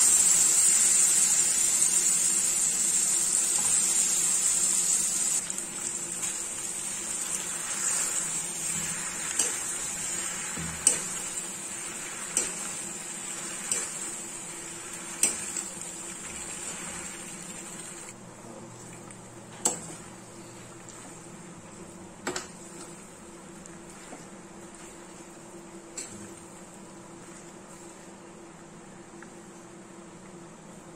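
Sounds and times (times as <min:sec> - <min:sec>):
food sizzling: 0:00.0 - 0:18.2.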